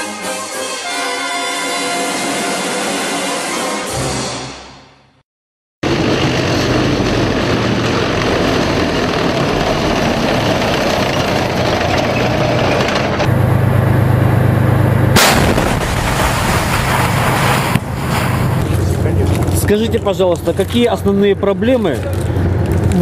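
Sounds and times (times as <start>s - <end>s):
tanks moving: 5.8s - 23.0s
tank gun firing: 15.1s - 17.9s.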